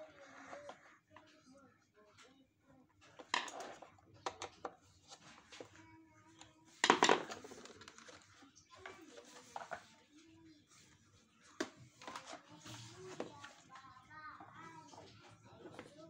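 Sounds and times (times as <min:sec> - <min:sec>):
plastic parts clicking and clattering: 0:03.1 - 0:04.8, 0:06.8 - 0:08.9.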